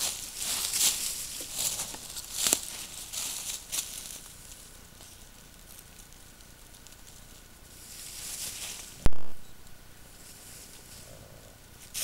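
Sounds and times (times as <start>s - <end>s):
animal rustling in dry leaves: 0.0s - 9.0s, 10.1s - 11.1s
microphone hiss: 0.0s - 12.0s.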